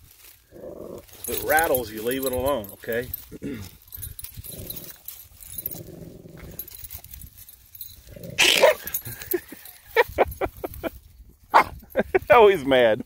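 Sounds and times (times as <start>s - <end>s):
dog growling: 0.5s - 1.4s, 4.4s - 6.8s, 8.0s - 8.9s
dog barking: 8.4s - 8.9s, 11.5s - 11.8s.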